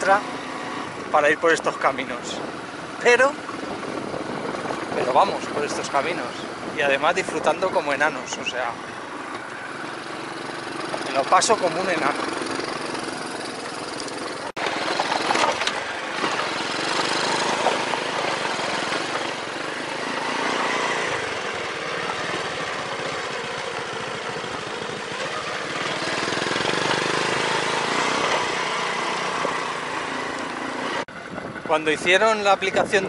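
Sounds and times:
wind noise on microphone: 1.9s - 9.1s, 31.1s - 33.0s
small motorbike engine running: 8.9s - 31.7s.

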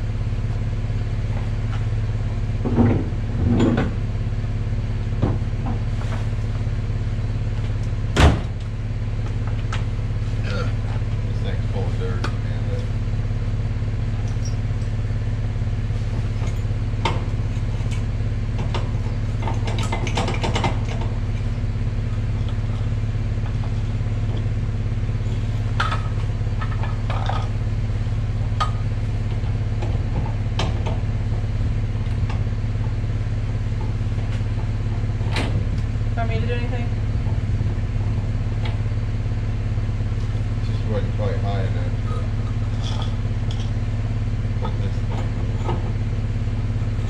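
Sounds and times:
truck engine idling: 0.0s - 47.0s
metal clicks and clanks of hitch: 18.6s - 21.4s.

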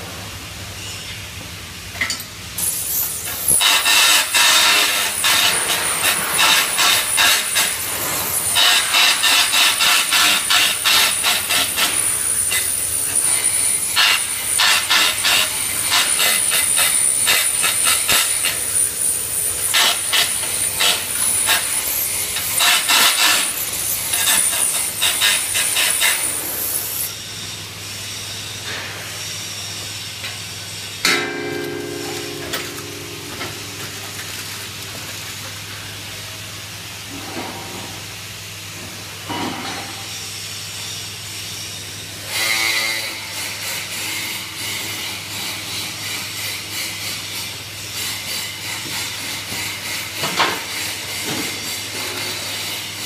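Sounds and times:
welding arc crackling hiss: 2.5s - 31.1s
low steady hum: 31.0s - 35.3s.

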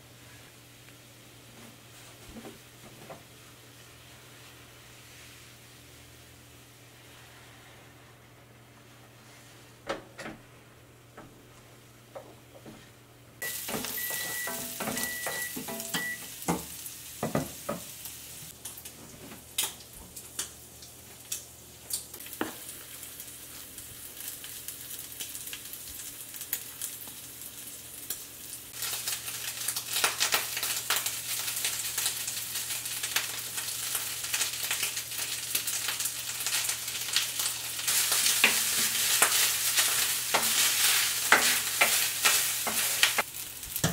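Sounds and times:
short high beeps: 13.4s - 16.3s
utensil knocking pan: 13.4s - 17.9s
food sizzling in frying pan: 13.4s - 43.9s.

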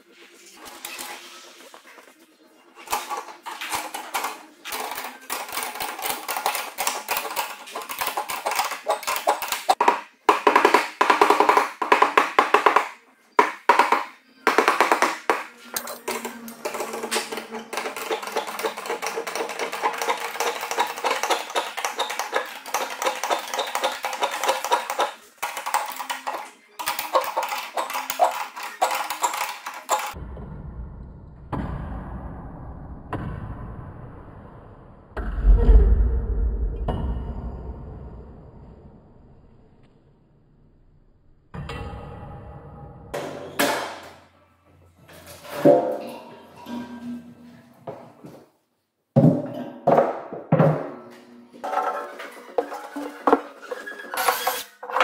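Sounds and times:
low rumble: 35.2s - 39.3s.

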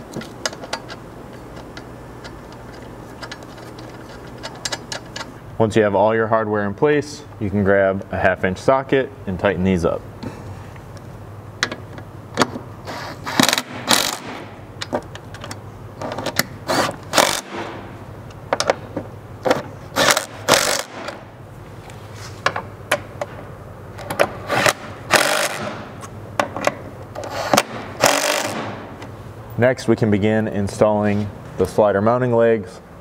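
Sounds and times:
tool and hardware clicks: 0.0s - 5.4s, 13.3s - 17.8s, 19.4s - 21.2s, 24.0s - 29.1s
impact driver bursts: 12.9s - 14.5s, 16.6s - 17.8s, 19.9s - 21.2s, 24.4s - 25.9s, 27.3s - 28.9s.

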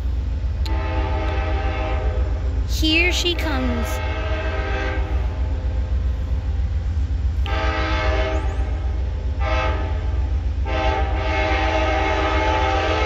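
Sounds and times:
train low rumble: 0.0s - 13.0s
locomotive air horn blasts: 0.6s - 2.4s, 3.6s - 5.4s, 7.4s - 13.0s.

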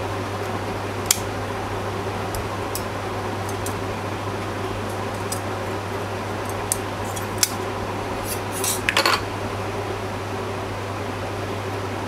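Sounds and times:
fan hum: 0.0s - 12.0s.

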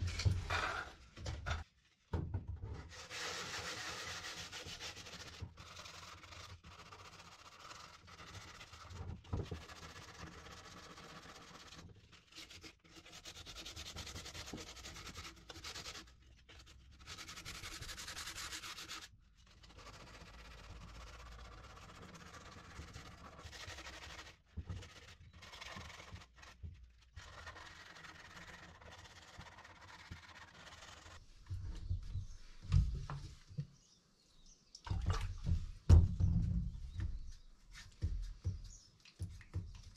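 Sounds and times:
sandpaper rubbing on plastic: 2.9s - 31.2s
dull knock: 35.0s - 37.2s.

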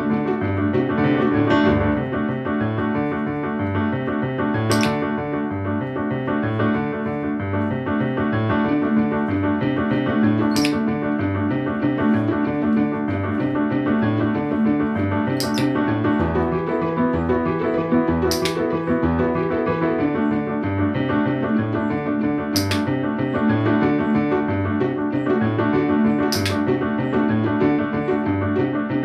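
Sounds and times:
piano background music: 0.0s - 29.0s
training clicker clicks: 4.6s - 6.0s, 10.4s - 13.6s, 14.2s - 19.2s, 22.0s - 23.1s, 25.8s - 26.8s.

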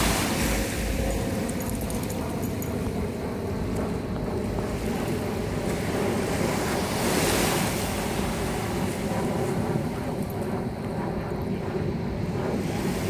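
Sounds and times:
small waves lapping on shore: 0.0s - 2.6s
wind rumbling on microphone: 0.0s - 13.0s.

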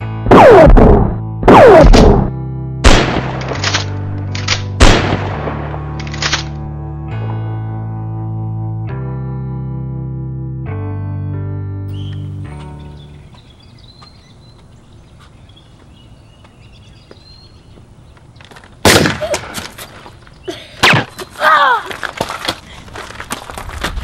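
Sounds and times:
toy blaster shots: 0.3s - 2.3s
faint birdsong: 11.9s - 18.8s, 19.8s - 21.8s
child crying out: 21.4s - 22.0s.

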